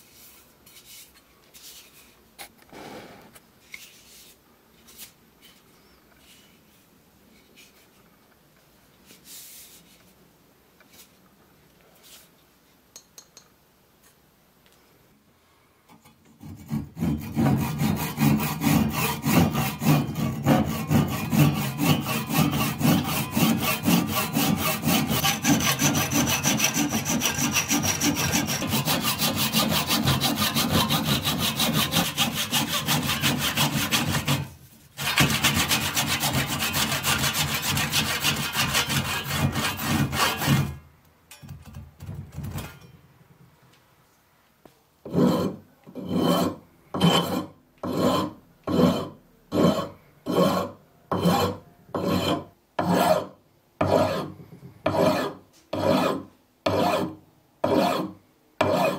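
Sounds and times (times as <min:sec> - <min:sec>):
hand saw cutting wood: 0:16.4 - 0:40.8, 0:45.1 - 0:54.3, 0:54.9 - 0:58.9.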